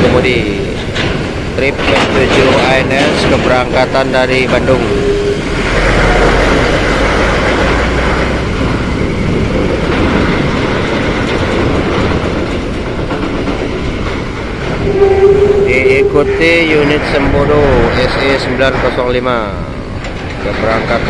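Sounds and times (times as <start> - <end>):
bus engine rumbling past: 4.3 - 12.4.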